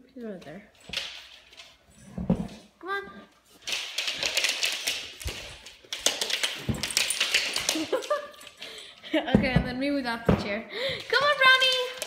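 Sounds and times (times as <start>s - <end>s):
dog claws clicking on wooden floor: 3.5s - 8.6s, 11.0s - 12.0s.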